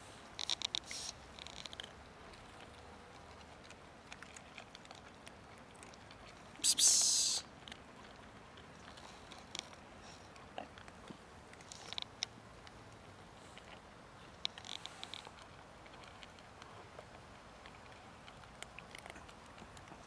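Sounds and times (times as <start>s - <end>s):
cats crunching dry kibble: 0.1s - 20.0s
short rush of hissing noise: 6.6s - 7.4s.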